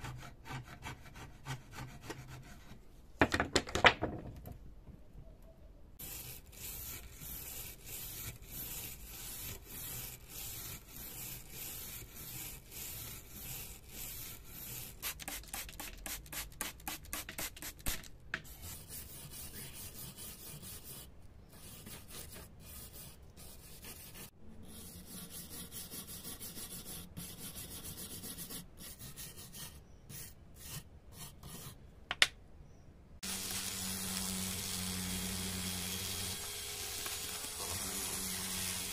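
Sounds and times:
sanding block rubbing on metal: 6.0 - 17.7
rotary tool wire brush running: 33.2 - 38.9.

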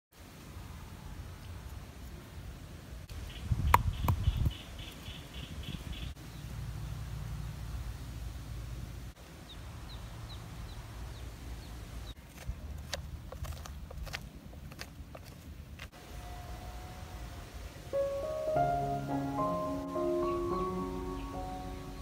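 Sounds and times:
bird chirping: 3.1 - 7.5, 19.0 - 22.0.

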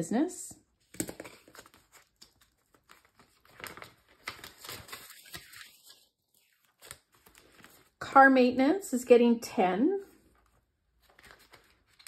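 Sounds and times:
paper bills rustling: 1.0 - 8.0, 10.2 - 12.0.

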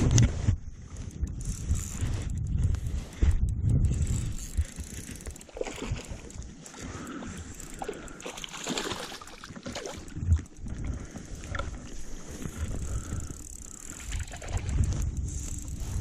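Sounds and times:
microphone handling noise: 0.0 - 4.4
wind buffeting microphone: 0.0 - 8.2, 9.5 - 16.0
small clicks: 1.0 - 8.5, 12.4 - 16.0
fish splashing in water: 7.0 - 10.5.

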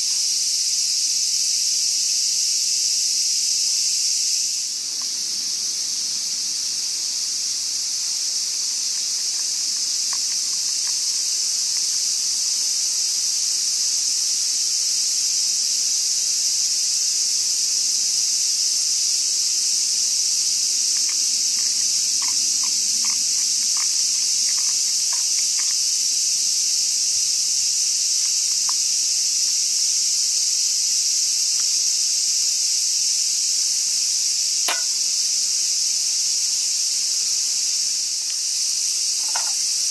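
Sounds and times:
insects chorus: 0.0 - 39.9
faint light ticks: 5.0 - 5.2.

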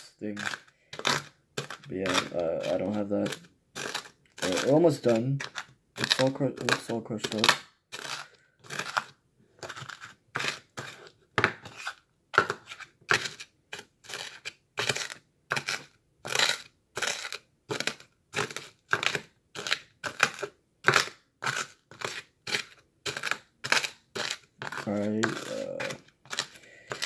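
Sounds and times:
spoon crushing crunchy snacks: 0.0 - 27.0.

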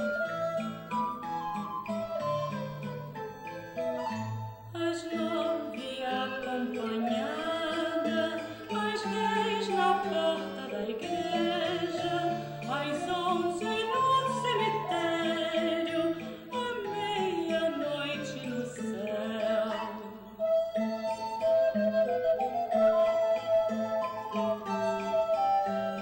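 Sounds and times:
people singing with vibrato: 4.7 - 21.4, 22.0 - 26.0.

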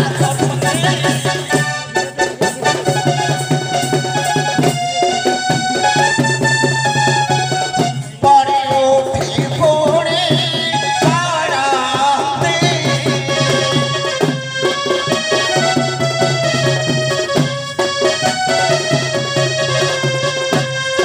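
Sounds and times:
reed instrument melody: 0.0 - 8.5, 9.7 - 21.0
drum beat: 0.0 - 21.0.

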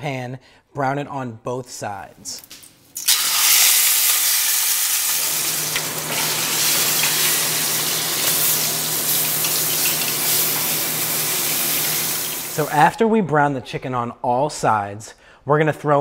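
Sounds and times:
chicken sizzling in hot oil: 3.0 - 12.7.

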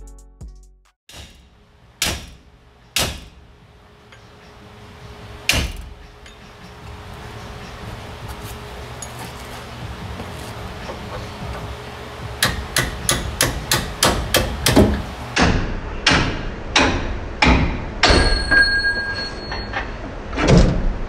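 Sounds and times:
hammer striking steel: 1.1 - 4.6, 5.4 - 6.9, 12.3 - 19.8.

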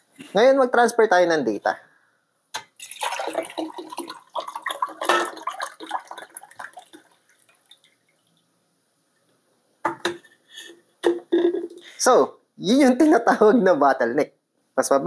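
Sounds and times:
water pouring into mugs: 2.6 - 8.4.

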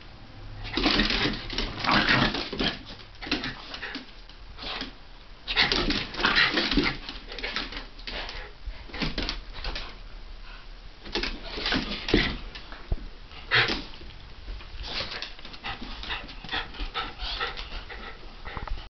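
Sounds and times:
dogs scuffling: 0.6 - 18.2
dogs huffing and panting: 14.9 - 18.9.

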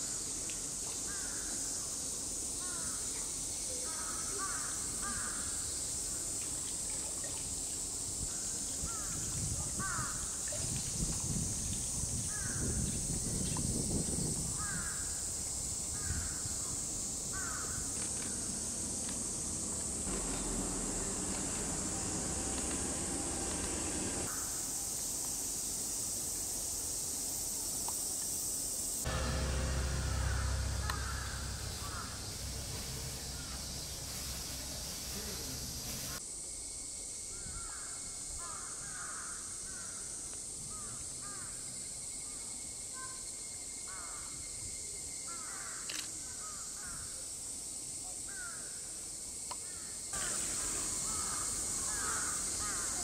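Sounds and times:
cicadas droning: 0.0 - 53.0
low rumble: 29.1 - 35.9
bird calls: 29.6 - 36.2.

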